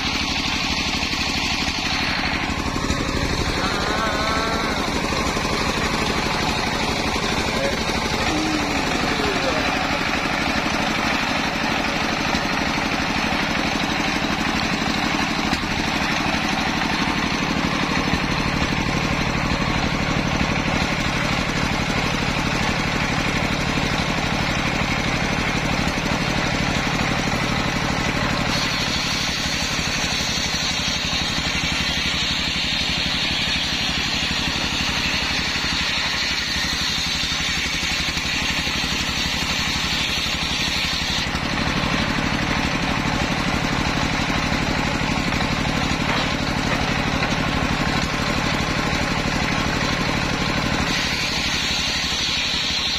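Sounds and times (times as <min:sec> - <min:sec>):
high steady whine: 0:00.0 - 0:12.1
circular saw blade spinning: 0:00.0 - 0:52.9
diesel engine running: 0:00.0 - 0:52.9.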